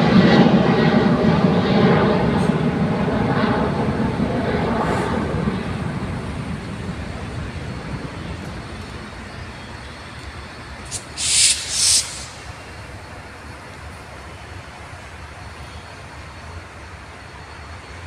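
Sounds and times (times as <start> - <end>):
jet airliner engine rumble: 0.0 - 18.0
loud high hiss-like bursts: 10.8 - 13.2.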